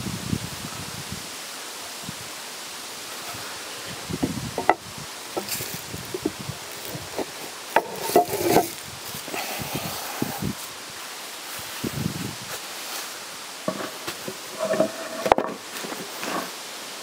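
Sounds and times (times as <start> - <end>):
wooden knocks and taps: 4.2 - 4.8, 7.2 - 8.7, 13.7 - 16.4
loud wooden clacks: 4.6 - 4.8, 7.1 - 8.8.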